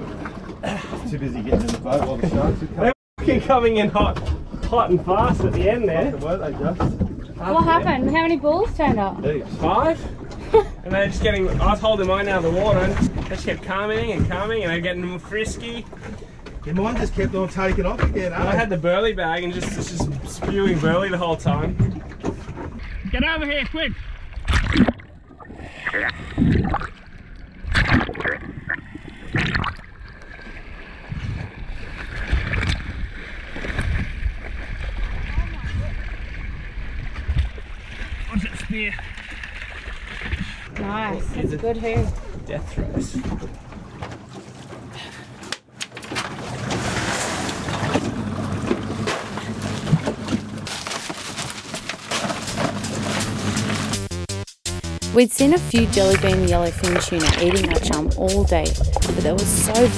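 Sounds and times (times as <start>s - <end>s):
water sloshing and splashing: 0.0s - 54.1s, 55.8s - 59.9s
fish handled in plastic cooler: 50.6s - 53.2s
bagged ice rustling and knocking: 50.6s - 54.0s.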